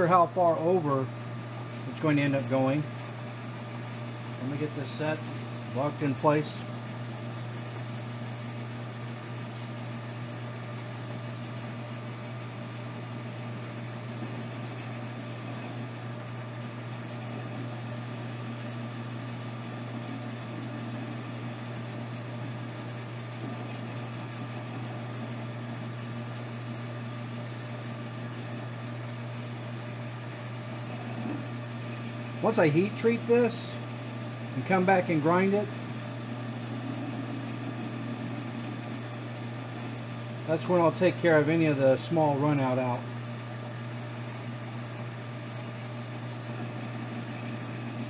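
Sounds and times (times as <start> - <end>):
metal lathe humming: 12.0 - 48.0.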